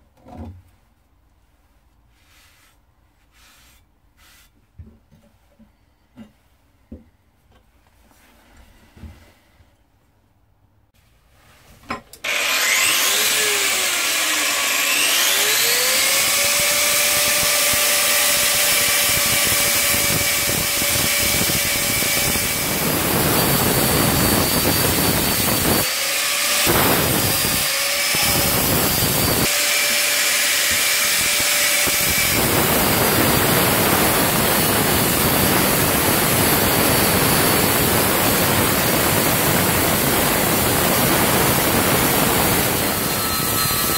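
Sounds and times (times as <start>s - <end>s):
grinder rasping on steel blade: 12.2s - 35.9s
angle grinder motor whining: 12.2s - 43.9s.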